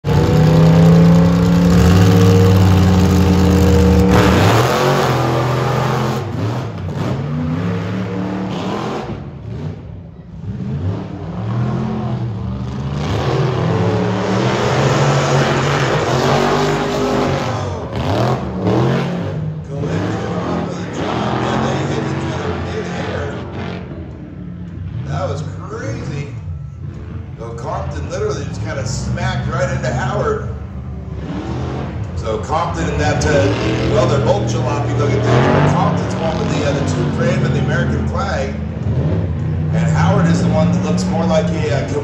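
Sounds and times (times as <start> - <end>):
truck engines revving: 0.0 - 42.0.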